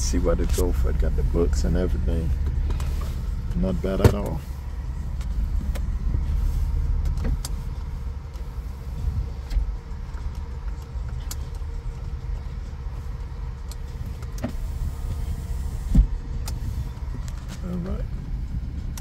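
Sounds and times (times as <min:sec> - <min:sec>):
car engine idling: 0:00.0 - 0:19.0
heater blower running: 0:00.0 - 0:19.0.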